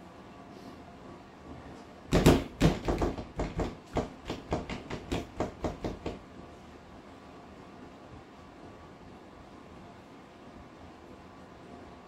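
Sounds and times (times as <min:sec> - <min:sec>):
hand banging on dishwasher: 0:02.1 - 0:06.2.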